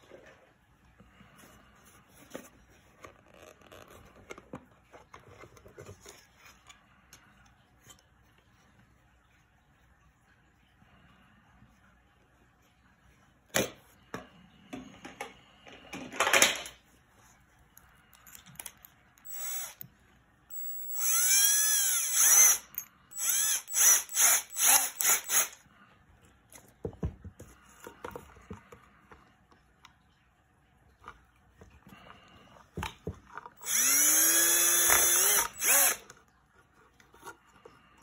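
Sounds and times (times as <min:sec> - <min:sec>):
cordless drill motor spinning: 0:19.2 - 0:19.9, 0:20.5 - 0:25.6, 0:33.6 - 0:36.1
drill chuck clicking: 0:20.5 - 0:25.6, 0:33.6 - 0:36.1.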